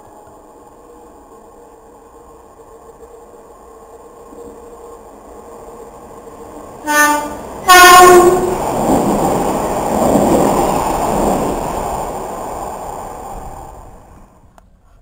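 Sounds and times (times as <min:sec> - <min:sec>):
train wheel and rail noise: 0:00.0 - 0:15.0
train horn blasts: 0:06.8 - 0:08.6.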